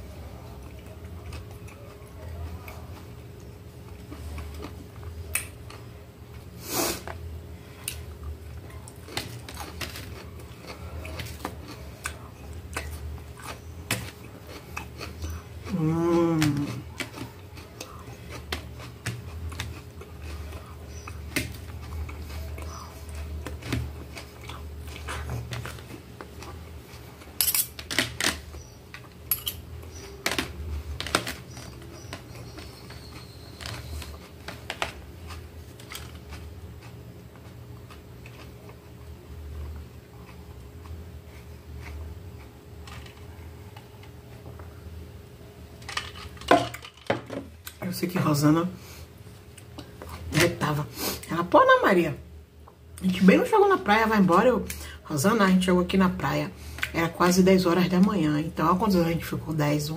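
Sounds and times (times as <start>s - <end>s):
chewing: 0.4s - 7.2s, 7.8s - 27.4s, 28.5s - 44.8s
cutlery clicking and scraping on plate: 27.4s - 28.4s, 29.3s - 29.6s.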